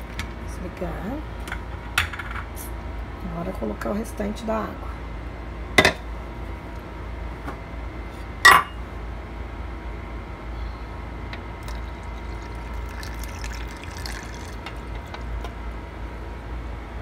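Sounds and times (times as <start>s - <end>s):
glass clink: 8.5s - 8.8s
water pouring into blender jar: 11.6s - 15.4s.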